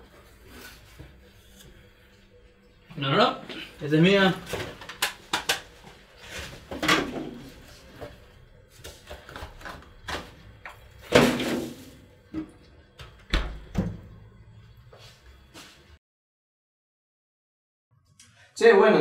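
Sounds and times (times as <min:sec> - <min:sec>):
freezer door thump: 0:11.1 - 0:11.9.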